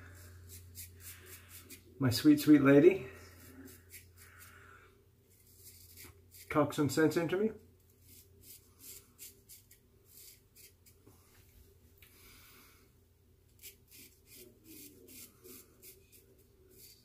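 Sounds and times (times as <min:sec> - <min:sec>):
razor scraping stubble: 0:00.2 - 0:04.5, 0:05.3 - 0:06.8, 0:07.9 - 0:11.0, 0:13.5 - 0:17.0.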